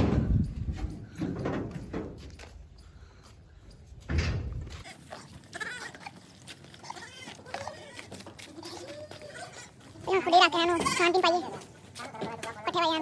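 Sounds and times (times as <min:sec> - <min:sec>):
goats bleating: 0:04.8 - 0:13.0.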